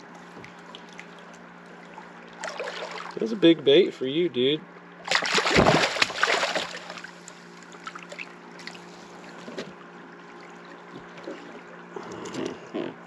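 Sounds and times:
fish thrashing and splashing water: 0:00.4 - 0:03.2, 0:05.1 - 0:09.5.

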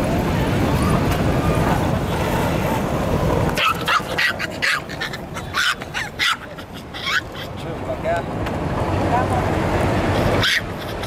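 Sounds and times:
steady rushing noise: 0:00.0 - 0:11.0
small dog yapping: 0:03.6 - 0:07.6, 0:10.2 - 0:11.0.

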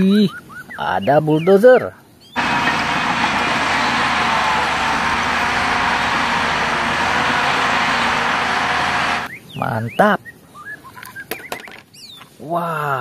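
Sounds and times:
bulldozer diesel engine running: 0:02.4 - 0:09.3.

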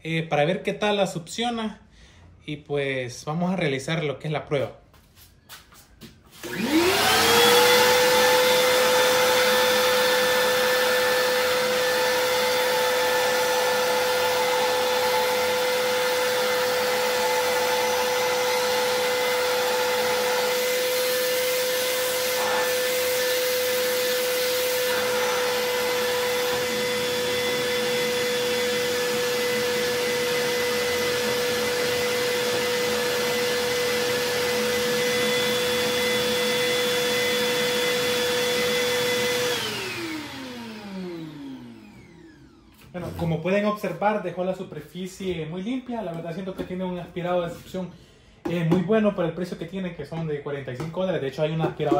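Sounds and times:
shop vacuum running: 0:05.1 - 0:46.6.

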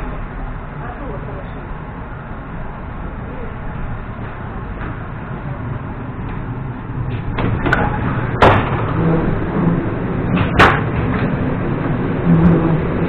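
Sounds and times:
train rumble: 0:00.0 - 0:13.0
train doors banging: 0:06.2 - 0:13.0.

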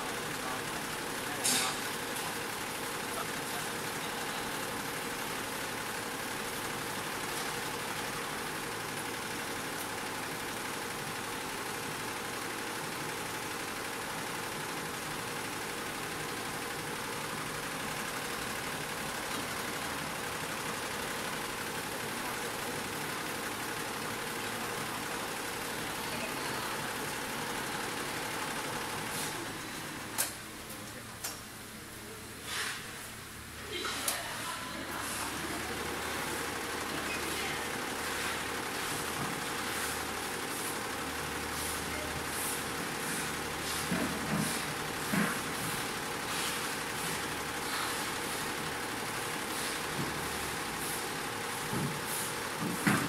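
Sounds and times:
embroidery machine running: 0:00.0 - 0:32.2, 0:33.2 - 0:53.0.

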